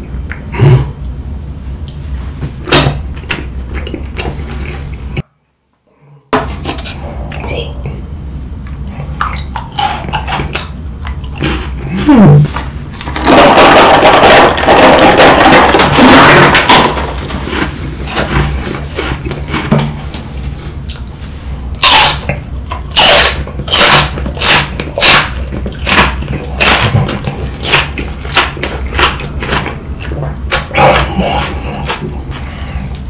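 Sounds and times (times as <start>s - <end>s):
chewing crunchy food: 8.7s - 21.2s, 21.8s - 33.0s
snack puffs pouring from box: 13.0s - 19.6s.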